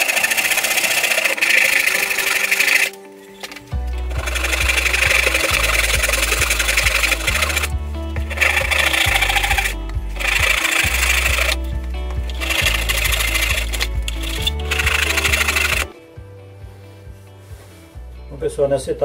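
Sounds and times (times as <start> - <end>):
hand saw cutting wood: 0.0 - 3.0, 4.1 - 7.7, 8.3 - 11.6, 12.4 - 15.9
background music with bass line: 1.6 - 19.0.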